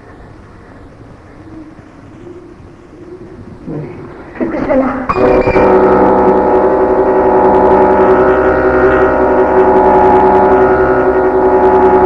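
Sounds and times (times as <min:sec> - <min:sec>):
gong-like metallic drone: 0:05.1 - 0:12.0.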